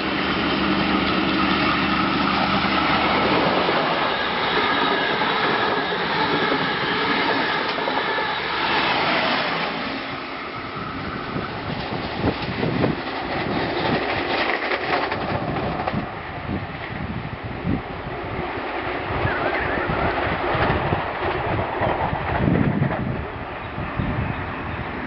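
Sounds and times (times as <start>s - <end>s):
train wheels rushing on rails: 0.0s - 25.0s
train wheels clattering: 11.4s - 16.1s.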